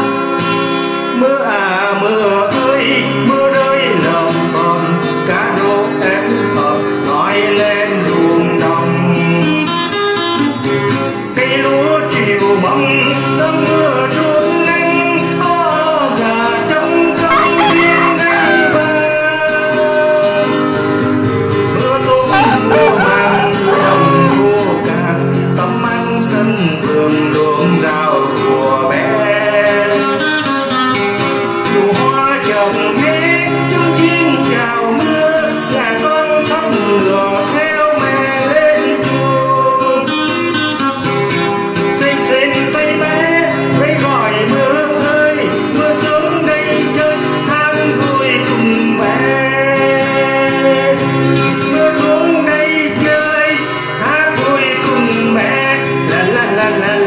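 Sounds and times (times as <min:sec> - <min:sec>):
acoustic guitar: 0:00.0 - 0:57.0
man singing: 0:01.2 - 0:09.5, 0:11.4 - 0:20.4, 0:21.8 - 0:30.2, 0:42.0 - 0:51.0, 0:51.6 - 0:57.0.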